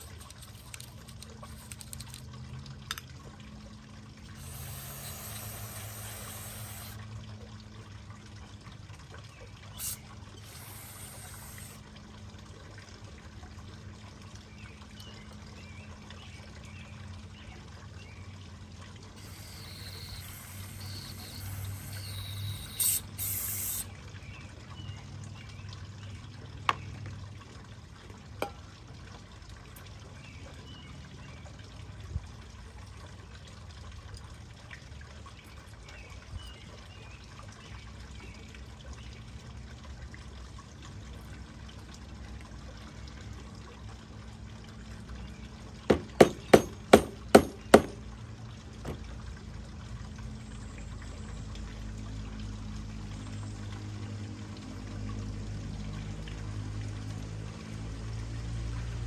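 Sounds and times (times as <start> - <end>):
liquid running off: 0.0 - 3.1, 4.0 - 7.7, 9.6 - 12.2, 19.1 - 24.0
low steady hum: 0.0 - 58.7
aerosol spray hissing: 4.4 - 7.0, 9.8 - 11.8, 19.2 - 23.9.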